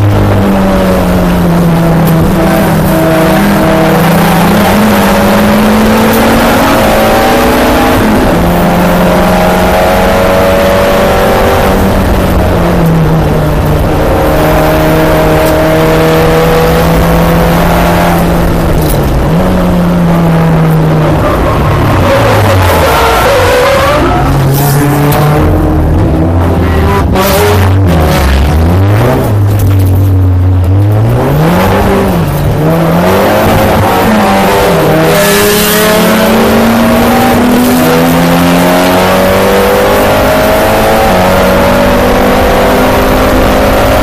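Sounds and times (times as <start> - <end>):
race car engine revving: 0.0 - 44.0.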